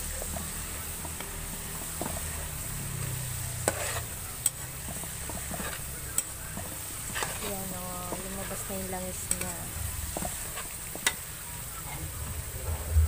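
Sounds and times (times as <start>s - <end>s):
metal spatula scraping a wok: 0.0s - 13.0s
oil sizzling in a wok: 0.0s - 13.0s.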